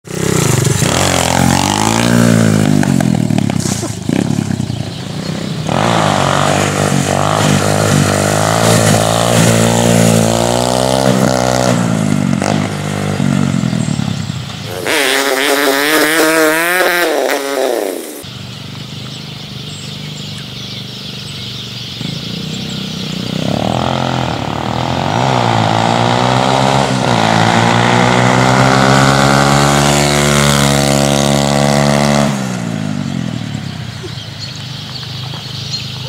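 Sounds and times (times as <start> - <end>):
motorbike engine revving: 0.0 - 36.0.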